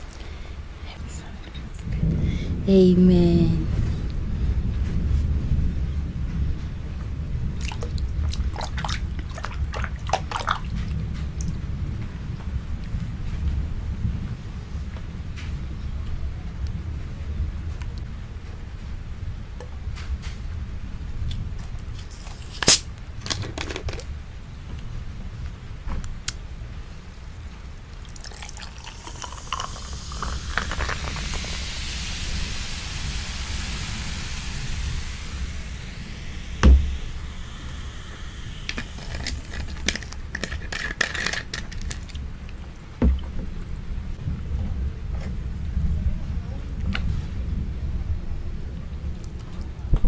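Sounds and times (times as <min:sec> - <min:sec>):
soda fizzing: 0:07.4 - 0:11.6, 0:22.0 - 0:22.9, 0:27.1 - 0:43.4
soda pouring over ice: 0:07.6 - 0:11.4, 0:27.8 - 0:42.3.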